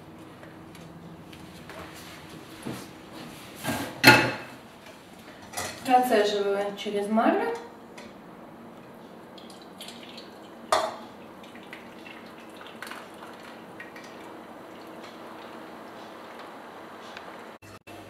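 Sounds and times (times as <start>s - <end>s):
liquid trickling into bowl: 9.3s - 15.7s.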